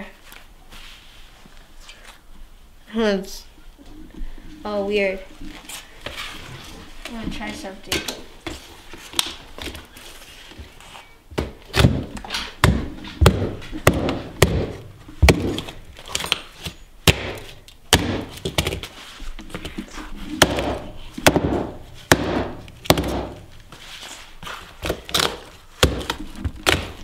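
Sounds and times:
hammer smashing phone: 20.4s - 23.4s.

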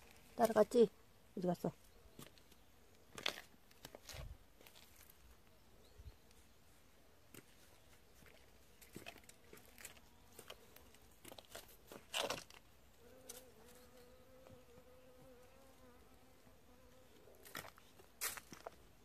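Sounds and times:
bee buzzing: 13.0s - 17.2s.

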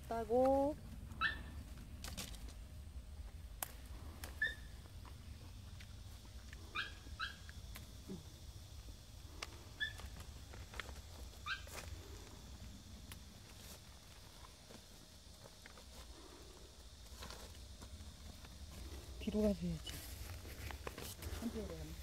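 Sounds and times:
peppers snapping off plants: 3.5s - 4.4s.

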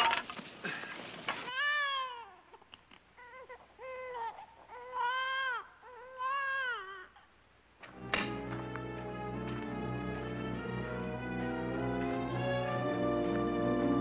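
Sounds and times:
sharp crash: 7.9s - 8.6s.

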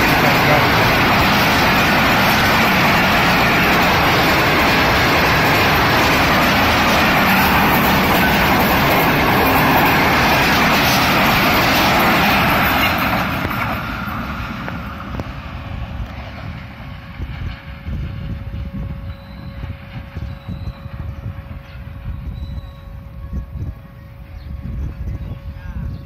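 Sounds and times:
train wheels rumbling on rails: 0.0s - 26.0s
wind rumble on microphone: 14.9s - 26.0s.

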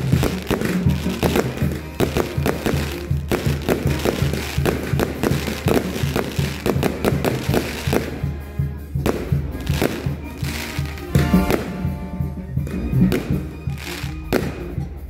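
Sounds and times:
fireworks bursting and crackling: 0.0s - 15.0s
music with steady beat: 0.0s - 15.0s.

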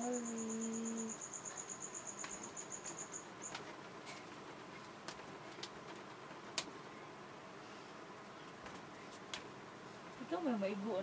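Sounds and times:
cricket trilling: 0.0s - 3.6s.

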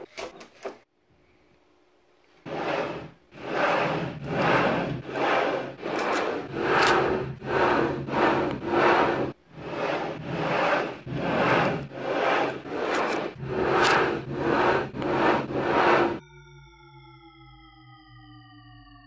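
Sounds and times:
magnet spheres grinding together: 2.5s - 16.2s.

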